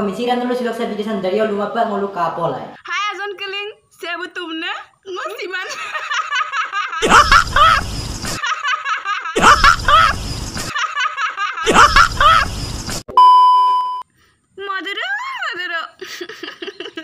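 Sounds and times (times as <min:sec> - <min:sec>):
man laughing heartily: 0:05.7 - 0:13.0, 0:16.0 - 0:17.0
steady electronic beep: 0:12.6 - 0:14.0.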